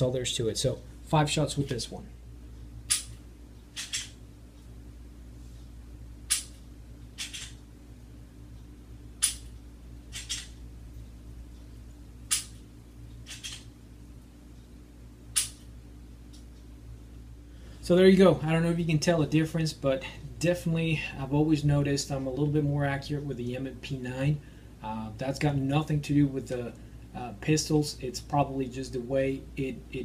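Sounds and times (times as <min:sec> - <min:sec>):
faint steady hum: 0:00.0 - 0:30.0
pistol slide being worked: 0:03.8 - 0:04.2, 0:10.1 - 0:10.6, 0:13.3 - 0:13.7.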